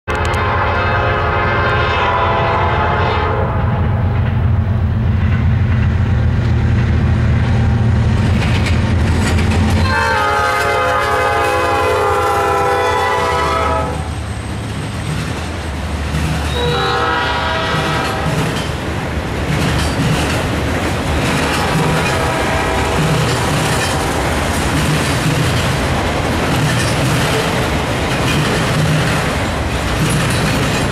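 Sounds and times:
train horn blasts: 0.1 - 4.2, 9.8 - 14.2, 16.5 - 18.4, 21.4 - 24.3
rail cars rolling on rails: 0.1 - 30.9.

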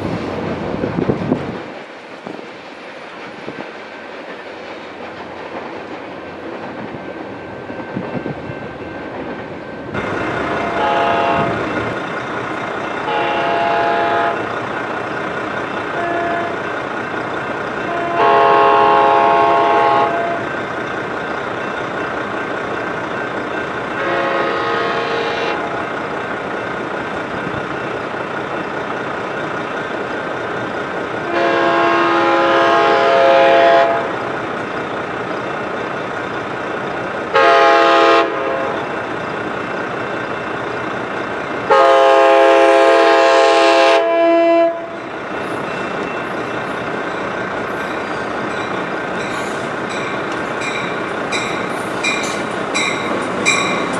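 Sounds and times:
train rumble: 0.0 - 53.9
train horn chords: 10.6 - 11.6, 13.0 - 14.5, 15.9 - 16.6, 17.8 - 20.5, 24.0 - 25.8, 31.3 - 34.2, 37.3 - 38.8, 41.7 - 45.0.

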